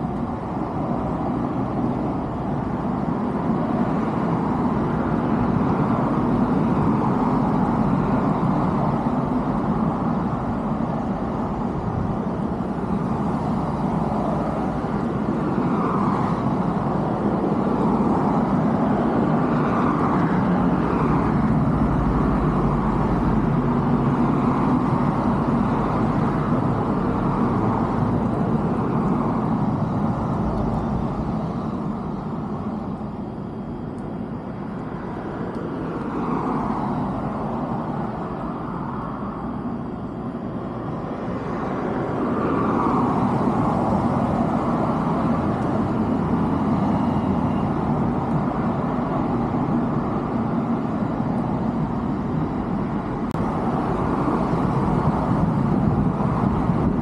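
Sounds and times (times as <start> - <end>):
road traffic: 0.0 - 57.0.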